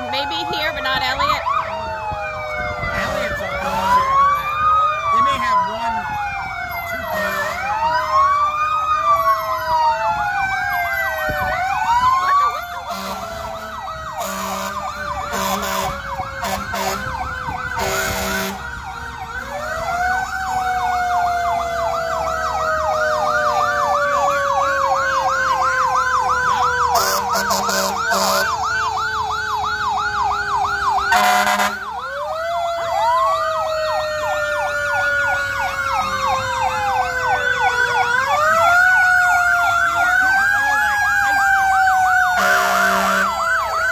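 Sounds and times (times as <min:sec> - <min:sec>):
fire truck sirens wailing: 0:00.0 - 0:43.9
siren fast yelp: 0:00.0 - 0:43.9
horn blasts: 0:12.8 - 0:17.1, 0:31.1 - 0:31.8, 0:42.4 - 0:43.3.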